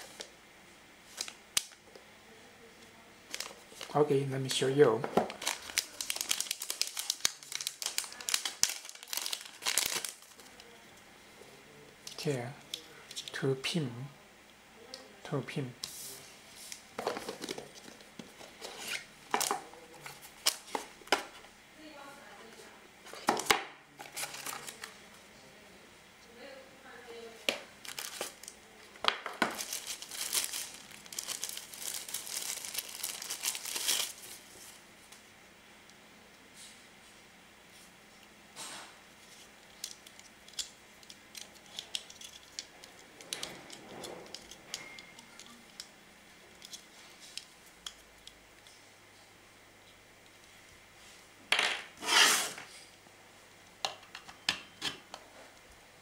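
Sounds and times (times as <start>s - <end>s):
plastic bag crinkling: 5.2s - 10.7s, 27.8s - 28.6s, 29.2s - 34.8s.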